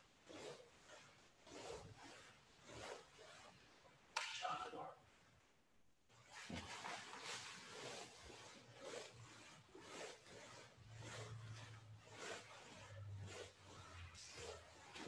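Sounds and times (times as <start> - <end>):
fabric rustling: 6.1 - 15.0.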